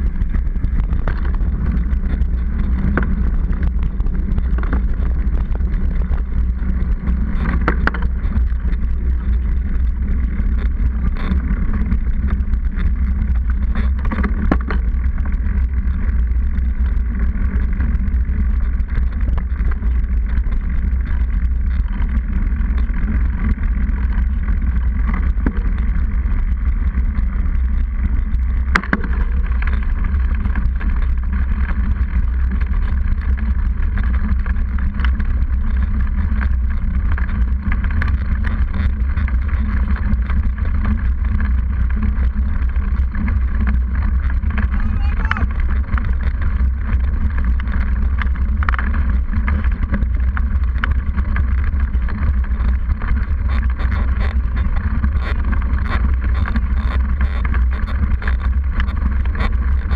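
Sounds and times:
bike tyre rolling on road: 0.0 - 59.9.

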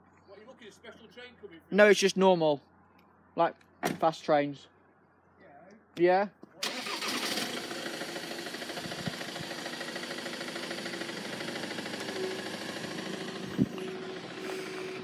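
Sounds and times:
engine idling: 6.6 - 15.0.

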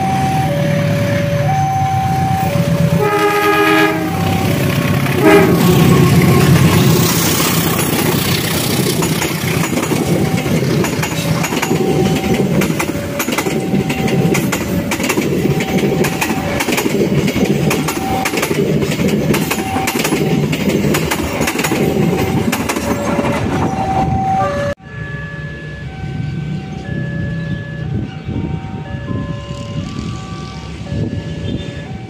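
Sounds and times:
level crossing warning beep: 0.0 - 6.7, 10.0 - 16.7, 17.4 - 18.7, 19.3 - 20.6, 23.3 - 32.0
passing train rush: 0.0 - 32.0
train wheels clattering over rail joints: 4.4 - 23.9.

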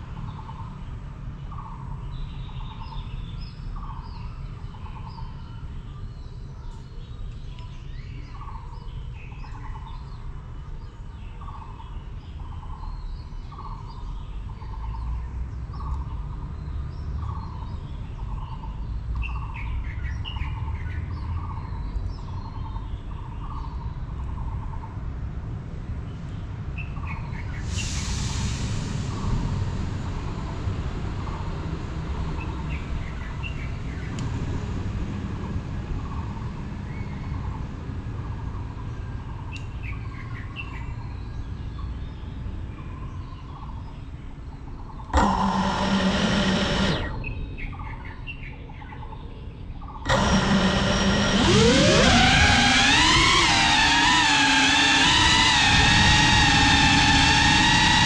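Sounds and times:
bird repeating low note: 45.0 - 47.9
low rumble: 50.1 - 58.0.

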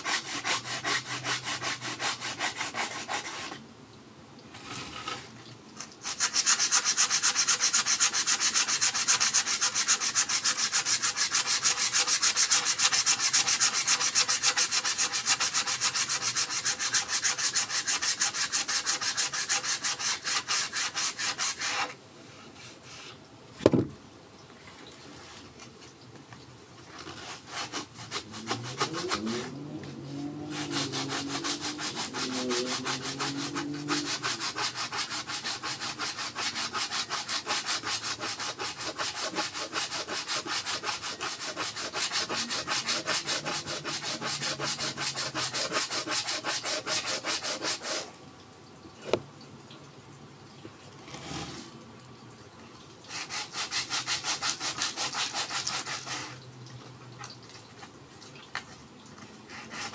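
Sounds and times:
sandpaper rubbing on wood: 0.0 - 3.6, 6.0 - 22.0, 27.1 - 48.1, 53.1 - 56.4, 59.5 - 59.9.

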